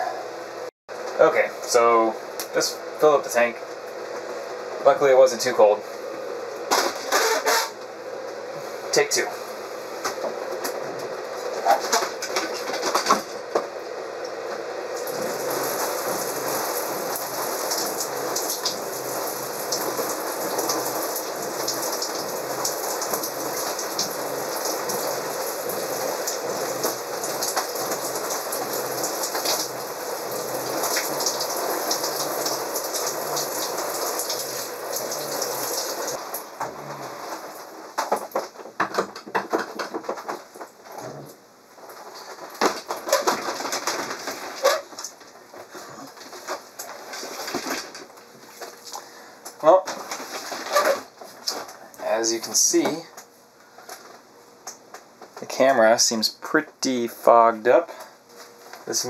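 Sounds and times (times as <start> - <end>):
shower water spraying: 14.8 - 38.3, 40.4 - 53.0
knocks and clatters: 36.6 - 41.3, 42.0 - 48.1.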